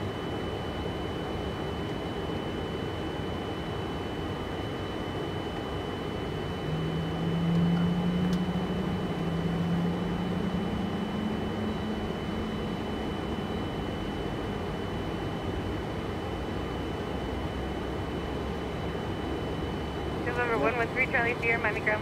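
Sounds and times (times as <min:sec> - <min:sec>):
faint high whine: 0:00.0 - 0:22.0
low hum: 0:04.8 - 0:22.0.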